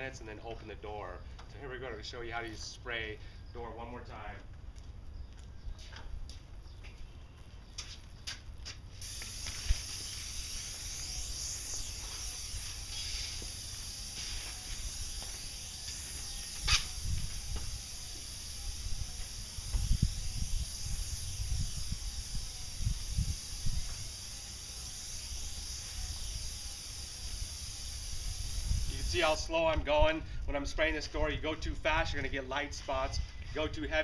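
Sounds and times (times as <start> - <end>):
paint spray gun hissing: 8.8 - 29.6.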